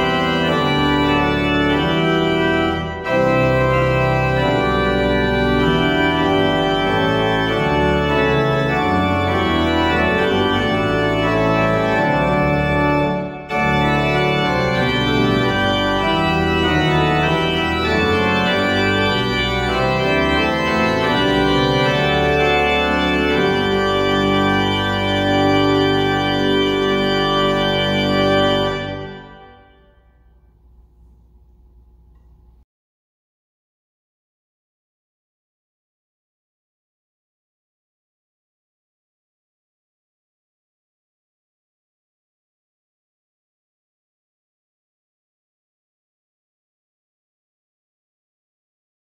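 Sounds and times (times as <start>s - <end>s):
pipe organ playing a hymn: 0.0s - 30.3s.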